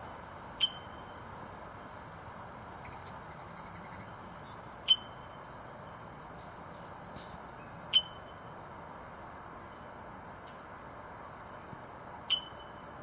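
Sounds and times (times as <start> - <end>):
steady background noise: 0.0 - 13.0
blackbird calls: 7.2 - 8.3.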